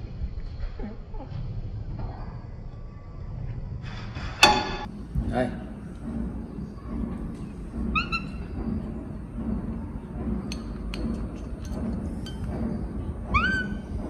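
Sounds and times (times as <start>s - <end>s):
steady low rumble: 0.0s - 14.0s
monkey squeak: 13.3s - 13.9s.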